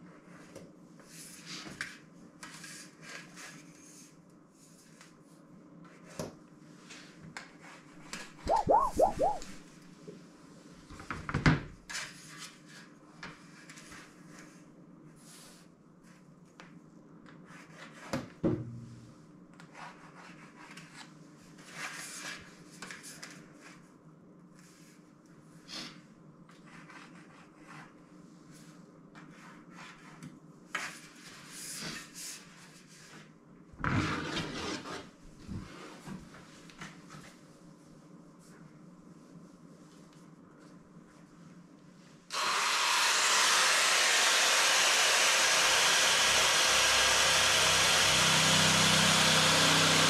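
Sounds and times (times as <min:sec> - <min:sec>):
straightedge rubbing on sheet: 0:07.6 - 0:09.6.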